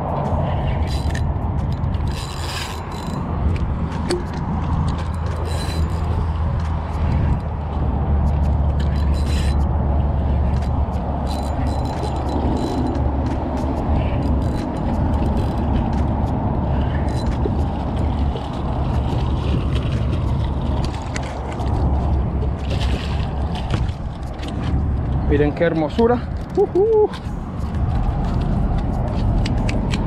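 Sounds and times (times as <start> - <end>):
steady low rumble: 0.0 - 30.0
fishing reel whirring and clicking: 0.8 - 7.6, 8.2 - 24.6.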